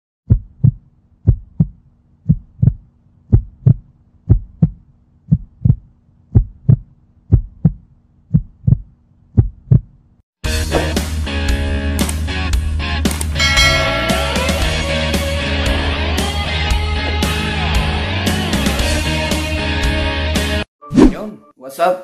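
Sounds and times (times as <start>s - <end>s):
heartbeat thumps: 0.3s - 10.0s.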